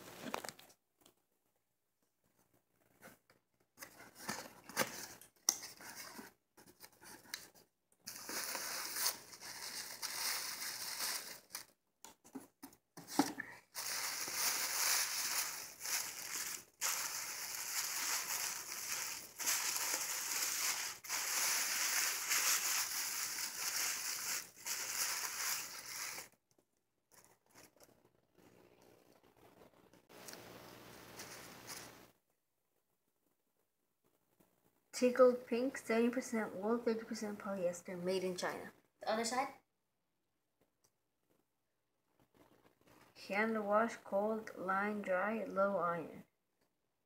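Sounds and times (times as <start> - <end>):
tissue paper crinkling: 8.1 - 11.7, 13.7 - 26.3.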